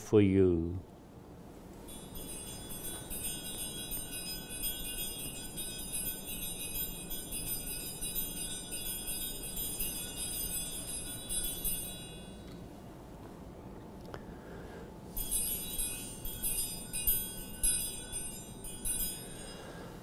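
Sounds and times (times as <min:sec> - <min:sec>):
altar bells jingling: 0:01.8 - 0:12.7, 0:15.1 - 0:20.0.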